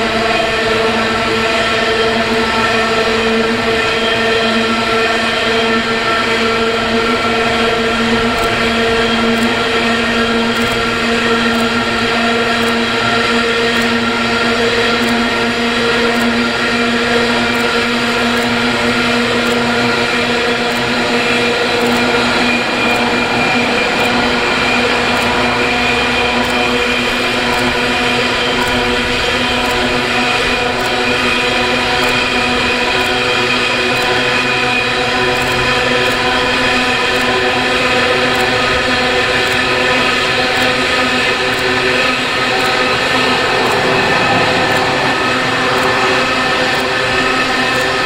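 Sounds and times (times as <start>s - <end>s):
locomotive engine drone: 0.0s - 48.0s
faint regular ticks: 9.3s - 9.7s, 10.4s - 11.9s, 12.5s - 13.0s, 13.7s - 14.0s, 14.9s - 15.4s, 16.1s - 16.4s, 17.3s - 20.0s, 20.6s - 27.9s, 28.5s - 46.1s.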